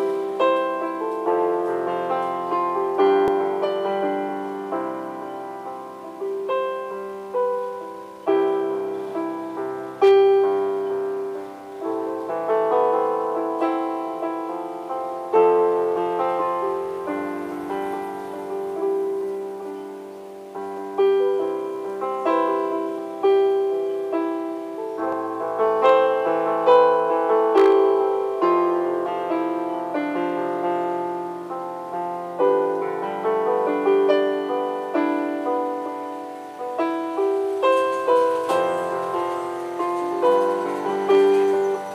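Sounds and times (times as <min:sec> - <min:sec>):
electronic keyboard piano tune: 0:00.0 - 0:41.9.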